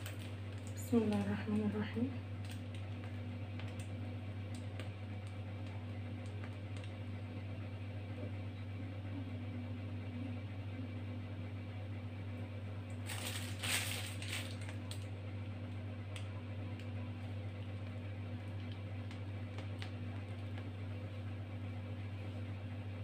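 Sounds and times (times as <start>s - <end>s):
piping bag crinkling and squishing: 0.0s - 7.0s, 12.9s - 15.2s, 16.7s - 20.9s
low electrical hum: 0.0s - 23.0s.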